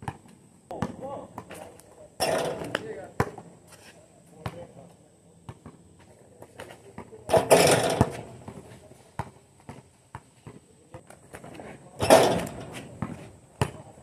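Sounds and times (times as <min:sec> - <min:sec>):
basketball bouncing on court: 0:00.0 - 0:01.6, 0:07.0 - 0:08.6, 0:09.2 - 0:10.6, 0:12.0 - 0:13.9
basketball rim rattling: 0:02.2 - 0:03.0, 0:07.3 - 0:08.6, 0:12.0 - 0:13.1.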